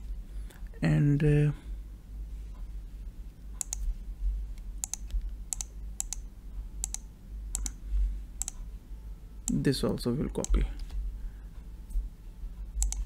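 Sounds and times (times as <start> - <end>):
low steady hum: 0.0 - 13.0
mouse and keyboard clicks: 3.6 - 3.9, 4.8 - 6.2, 7.6 - 7.8, 12.8 - 13.0.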